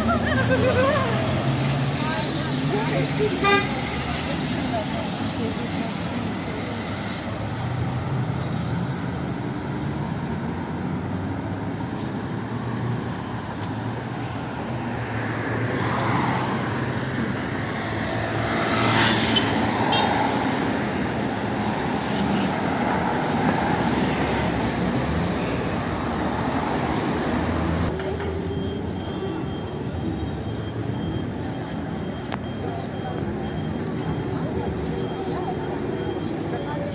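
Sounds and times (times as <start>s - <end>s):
road traffic: 0.0s - 36.9s.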